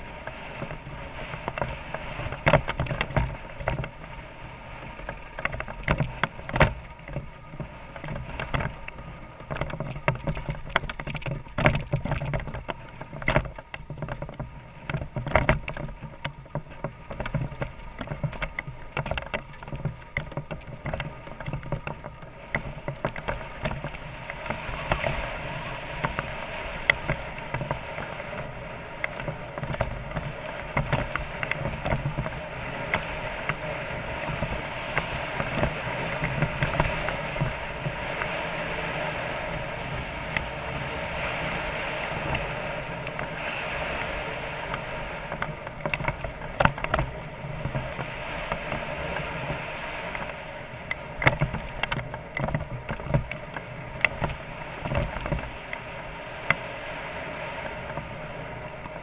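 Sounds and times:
motorcycle knocks and rattles: 0.6 - 4.1, 5.0 - 25.2, 29.0 - 38.0, 45.3 - 48.9, 50.9 - 55.5.

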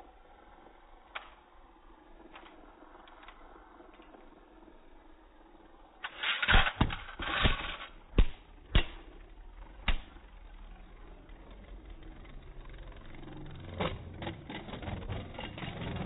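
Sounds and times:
spinning tops rasping scrape: 5.9 - 16.0.

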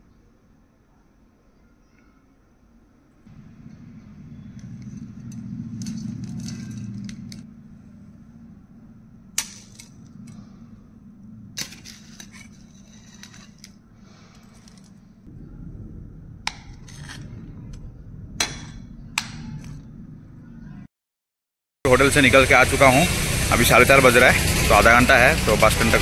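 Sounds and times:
low steady hum: 0.0 - 20.9.

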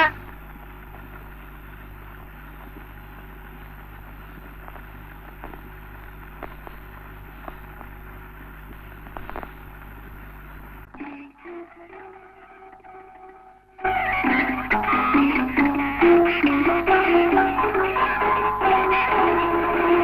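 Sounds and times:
crackles and clicks: 0.0 - 11.1
film soundtrack hiss: 0.0 - 20.0
low mains hum: 0.0 - 20.0.

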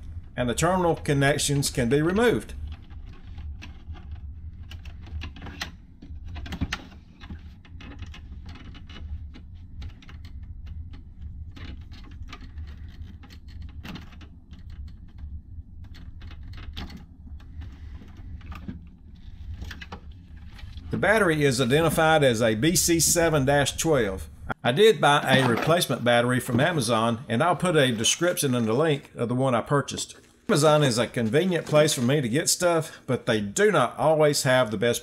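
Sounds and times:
low steady hum: 0.0 - 35.0
small clicks and rattles: 2.4 - 21.0.

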